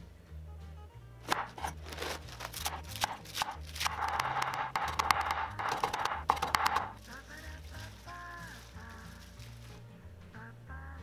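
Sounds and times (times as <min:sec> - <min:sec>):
cleaver chopping on wooden board: 0:01.3 - 0:07.0.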